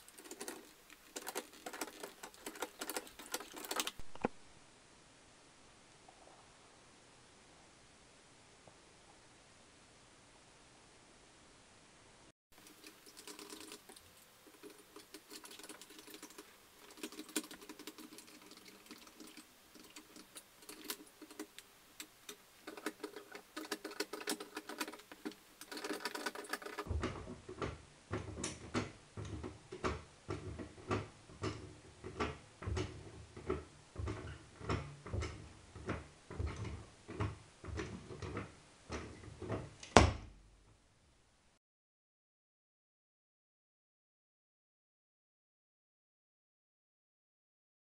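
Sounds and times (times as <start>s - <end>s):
jack clicking and rattling: 14.5s - 39.0s.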